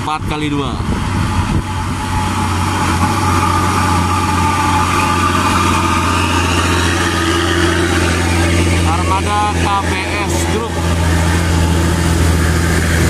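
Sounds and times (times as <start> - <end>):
truck diesel engine drone: 0.0 - 13.0.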